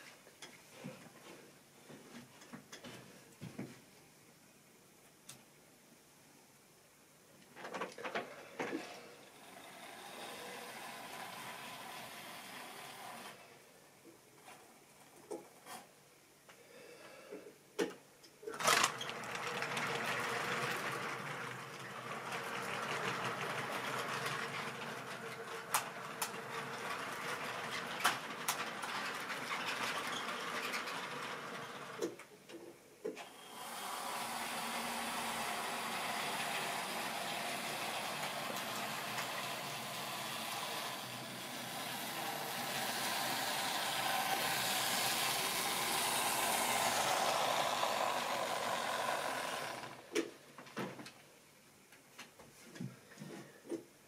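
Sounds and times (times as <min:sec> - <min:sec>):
small electric motor whirring: 0:09.3 - 0:13.4, 0:33.2 - 0:50.1
wheels clattering over track: 0:18.6 - 0:32.2, 0:35.2 - 0:50.3.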